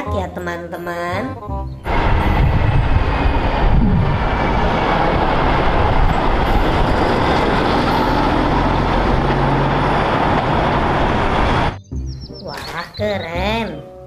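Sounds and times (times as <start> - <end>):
tanker truck driving past: 1.8 - 11.8.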